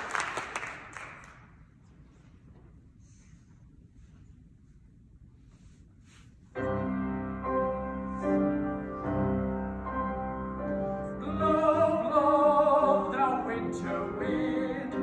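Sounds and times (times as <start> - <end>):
grand piano chords: 6.5 - 15.0
man singing with vibrato: 11.2 - 15.0.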